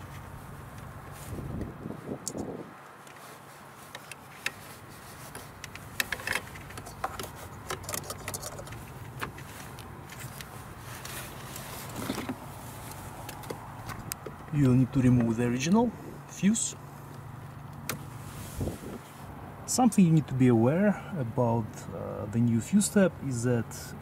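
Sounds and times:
handling rustle: 0.0s - 16.0s, 16.8s - 19.4s.

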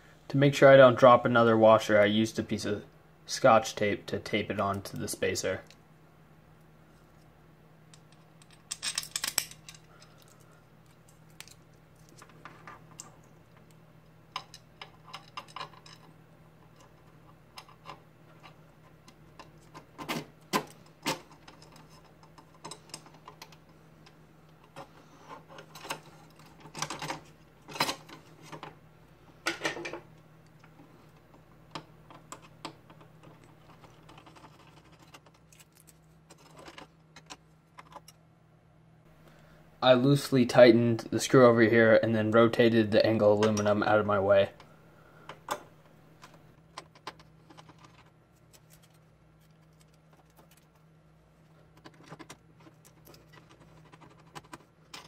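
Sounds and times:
faint low hum: 0.0s - 55.0s
metal hardware clicking and knocking: 7.9s - 10.3s.

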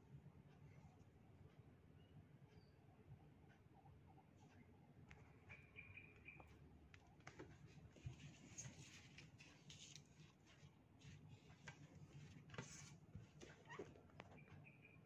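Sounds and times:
faint clicks and rustles: 4.4s - 14.7s.

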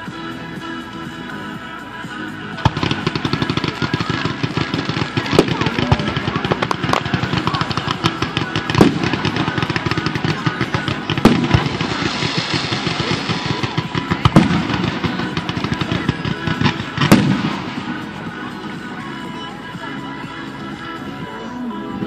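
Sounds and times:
fireworks crackling: 0.0s - 21.0s
fireworks booms: 2.6s - 18.3s.

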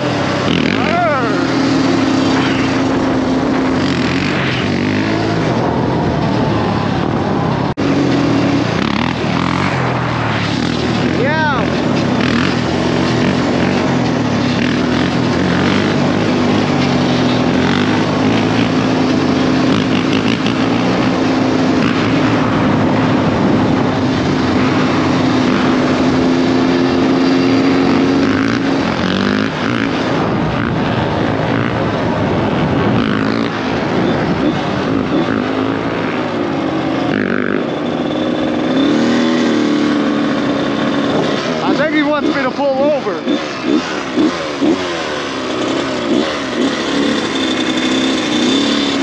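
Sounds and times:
dirt bike engine running: 0.0s - 49.0s
wind rush on microphone: 20.6s - 35.5s.

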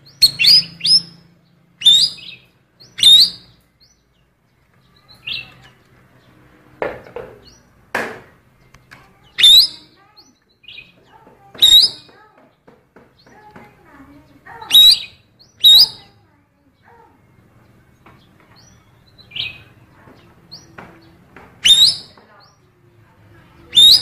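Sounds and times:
songbird sharp rising chirps: 0.0s - 6.6s, 8.5s - 12.1s, 14.1s - 16.2s, 17.3s - 22.8s, 23.6s - 24.0s.

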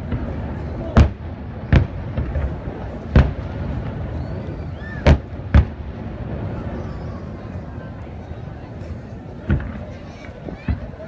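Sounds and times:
firework shells booming: 0.0s - 6.9s, 9.4s - 10.0s.

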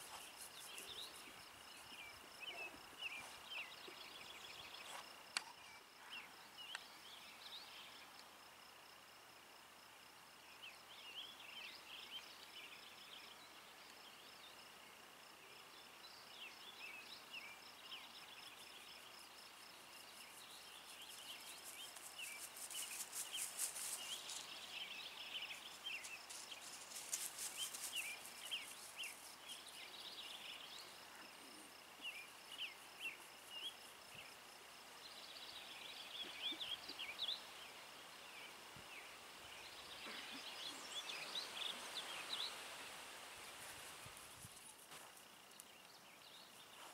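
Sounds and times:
birds chirping: 0.0s - 8.0s, 16.1s - 34.4s, 35.1s - 42.9s
high insect trill: 17.4s - 36.1s.

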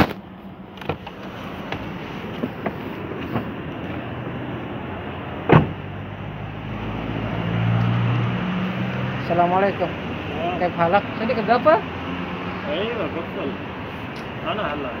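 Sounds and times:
low vehicle engine hum: 0.0s - 15.0s
street sound: 0.0s - 15.0s
car door clicking open: 5.4s - 5.8s
car door slamming shut: 5.4s - 5.9s.

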